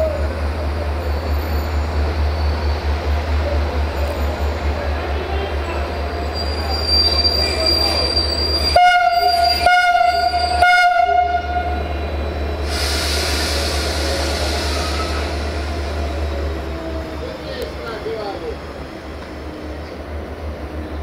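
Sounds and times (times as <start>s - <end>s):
diesel locomotive rumbling: 0.0s - 21.0s
thin high squeal: 6.2s - 9.7s
locomotive horn blasts: 8.8s - 11.8s
air hissing: 12.6s - 16.0s.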